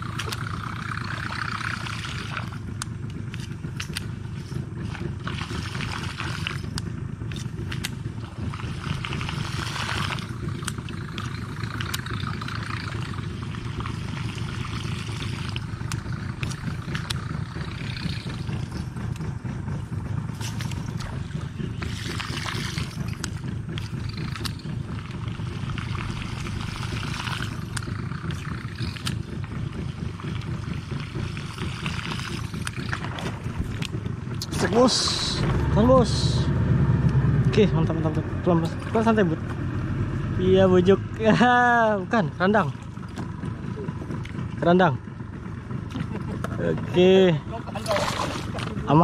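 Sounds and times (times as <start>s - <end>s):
fishing reel whirring: 0.0s - 36.4s
steady low rumble: 0.0s - 49.0s.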